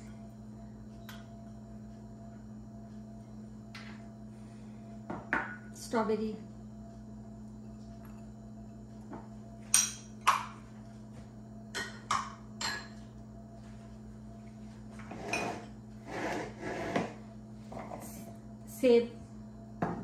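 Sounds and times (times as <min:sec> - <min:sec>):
steady low hum: 0:00.0 - 0:20.0
bowls scraping and rustling: 0:14.9 - 0:18.1.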